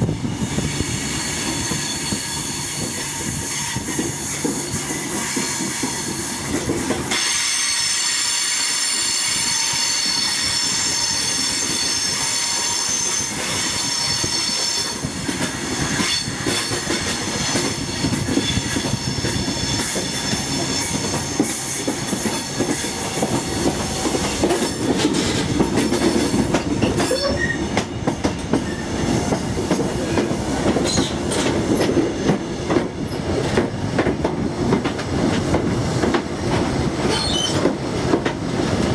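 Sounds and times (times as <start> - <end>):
train wheels clattering: 1.1 - 38.9
train low rumble: 8.9 - 38.9
high-pitched wheel squeal: 27.0 - 27.7, 37.1 - 37.6.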